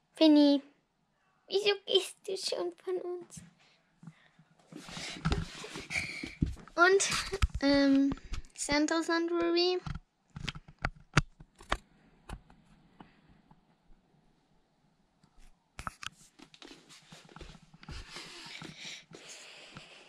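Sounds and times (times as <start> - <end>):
scratchy rustling handling noise: 4.6 - 8.5, 15.8 - 19.2
sharp clicks and knocks: 9.4 - 13.2.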